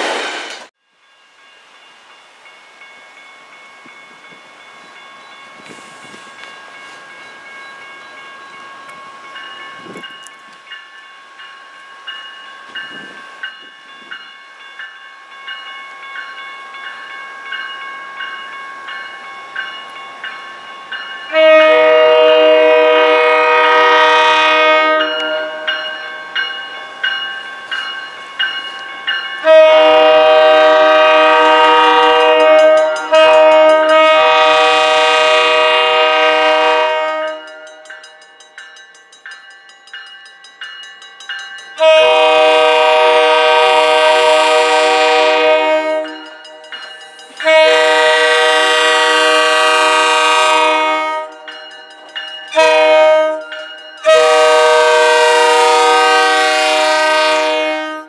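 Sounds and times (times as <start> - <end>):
crossing warning bells ringing: 0.9 - 58.0
train air horn blasts: 21.3 - 25.7, 29.4 - 37.7, 41.8 - 46.4, 47.4 - 51.5, 52.6 - 58.0.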